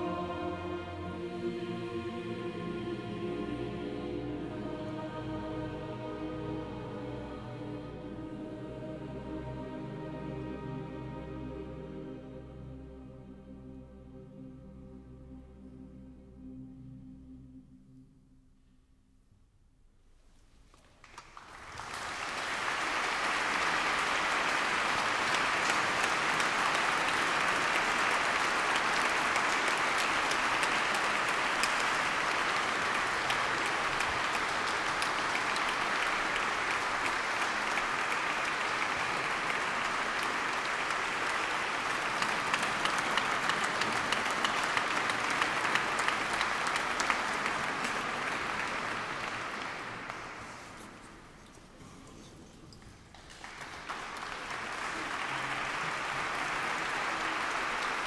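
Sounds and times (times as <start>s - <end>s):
audience applauding: 21.0s - 51.3s, 52.8s - 58.0s.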